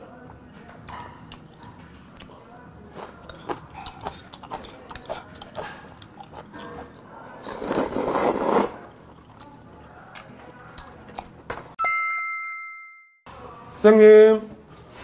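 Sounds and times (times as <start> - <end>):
person slurping noodles: 7.4 - 9.0.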